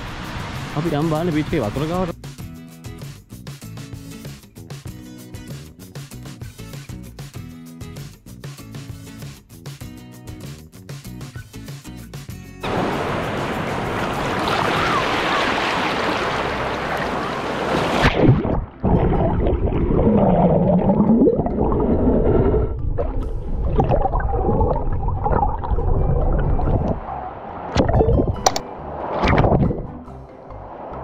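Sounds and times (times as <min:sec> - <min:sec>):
surf waves splashing: 0:00.0 - 0:02.1, 0:12.6 - 0:20.2
muffled underwater gurgling: 0:18.0 - 0:27.1.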